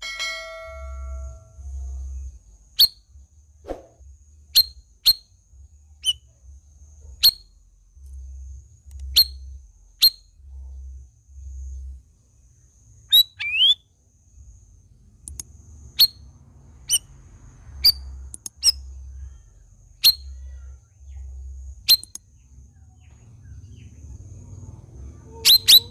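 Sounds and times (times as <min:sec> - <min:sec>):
bird sharp whistled notes: 0:13.1 - 0:13.8.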